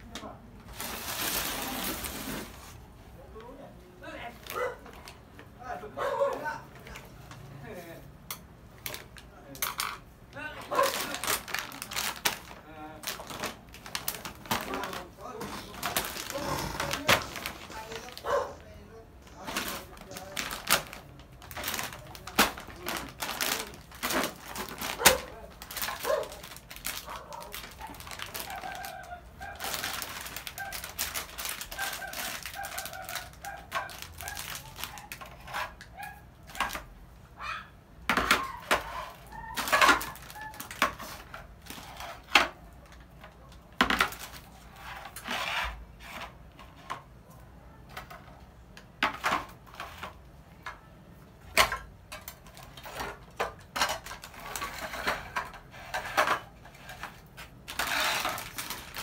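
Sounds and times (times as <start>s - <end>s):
plastic crinkling: 0.6s - 2.8s, 8.8s - 36.9s, 38.2s - 45.3s, 51.6s - 59.0s.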